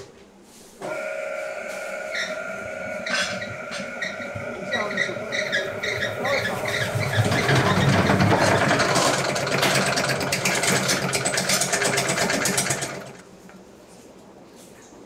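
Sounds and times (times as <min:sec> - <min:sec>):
spin dryer motor hum: 0:00.8 - 0:13.6
fast rattling: 0:04.9 - 0:13.2.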